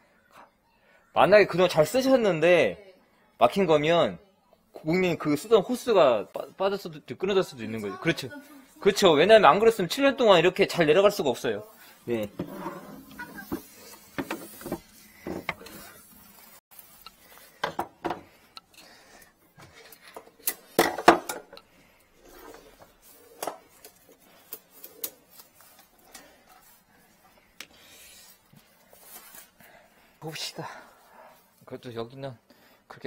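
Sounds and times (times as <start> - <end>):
cable rustling: 11.6 - 30.2
tools clicking and knocking: 19.6 - 21.7.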